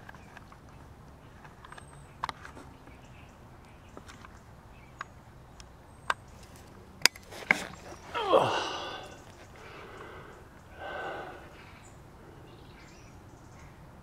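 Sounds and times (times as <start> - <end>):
crows cawing: 8.2 - 12.5.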